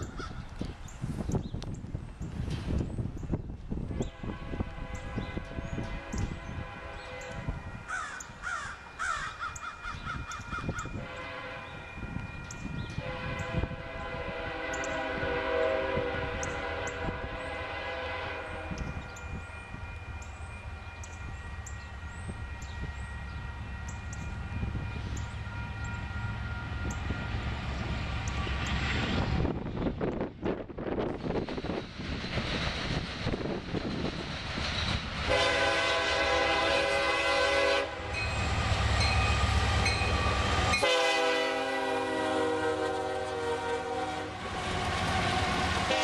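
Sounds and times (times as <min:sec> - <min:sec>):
low rumble of train: 0:00.0 - 0:46.0
train air horn blast: 0:03.9 - 0:07.6, 0:11.0 - 0:11.9, 0:12.9 - 0:19.0, 0:35.2 - 0:46.0.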